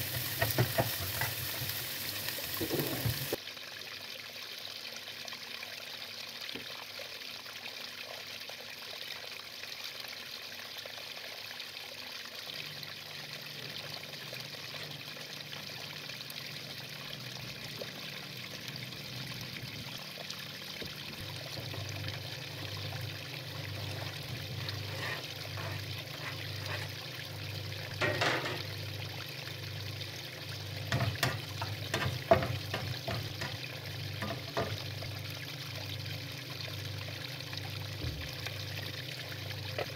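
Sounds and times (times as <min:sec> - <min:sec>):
steady hiss: 0:00.0 - 0:03.4
kitchen utensils knocking and scraping: 0:00.1 - 0:01.4, 0:27.9 - 0:28.7, 0:30.9 - 0:33.6, 0:34.2 - 0:34.8.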